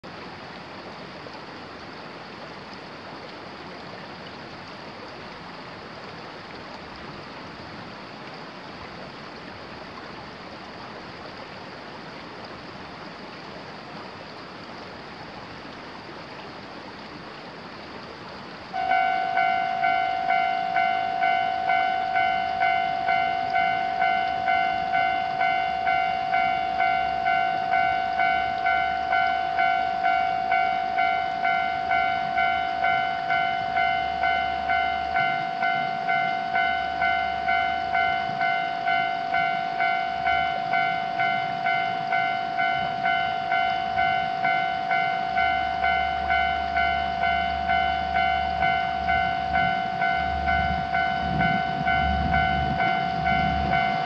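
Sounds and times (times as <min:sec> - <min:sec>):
level crossing alarm bell: 0:18.8 - 0:54.0.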